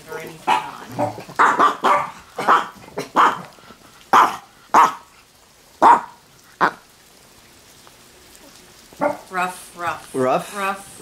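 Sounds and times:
small dog barking: 0.4 - 5.2, 5.8 - 6.8, 9.0 - 9.3.

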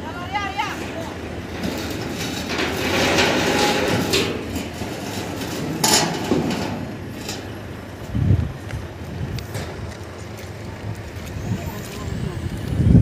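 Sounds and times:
construction site noise: 0.0 - 13.0
wind: 0.0 - 13.0
metallic knocks and clanks: 0.8 - 7.7.

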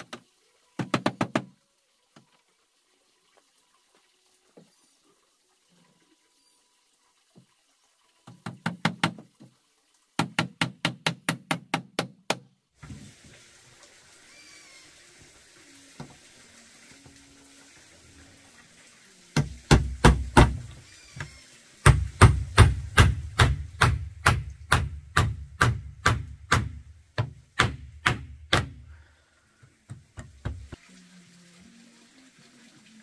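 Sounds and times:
hammer driving nails into wood: 10.2 - 12.5, 21.8 - 28.8.

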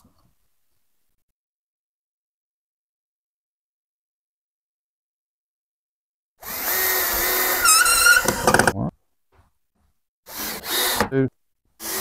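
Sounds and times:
power drill motor whining: 6.4 - 8.7, 10.3 - 11.2, 11.8 - 12.0.

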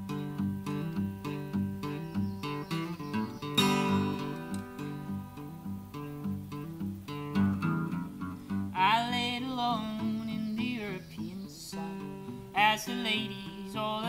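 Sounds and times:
acoustic guitar: 0.0 - 14.0
small plucked stringed instrument: 0.0 - 14.0
wordless sung vocal: 8.0 - 14.0.

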